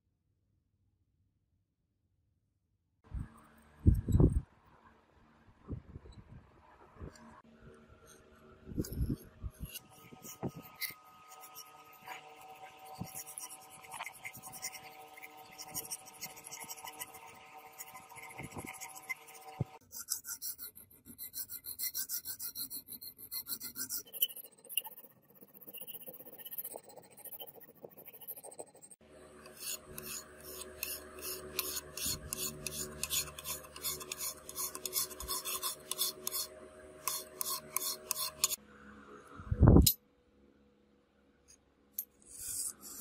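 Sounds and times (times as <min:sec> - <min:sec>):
hand file rasping on steel: 0:08.8 - 0:38.6, 0:42.2 - 0:43.0.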